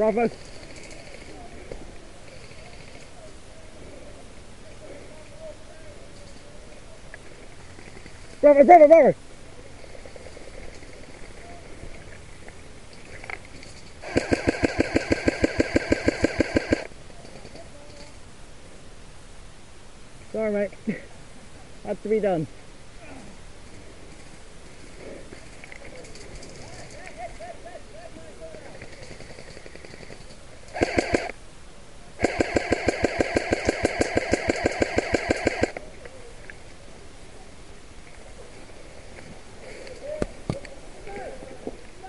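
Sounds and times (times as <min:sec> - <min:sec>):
airsoft gun firing full-auto: 0:14.0 - 0:16.9, 0:30.7 - 0:31.4, 0:32.2 - 0:35.8.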